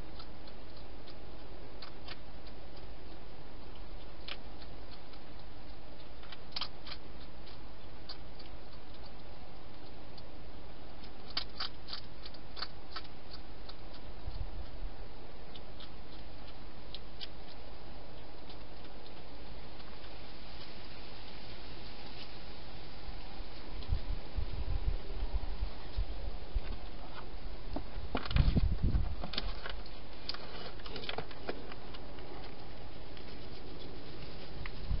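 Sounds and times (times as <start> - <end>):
hedgehog crunching food: 0.0 - 35.0
microphone hiss: 0.0 - 35.0
steady hiss: 16.6 - 29.0.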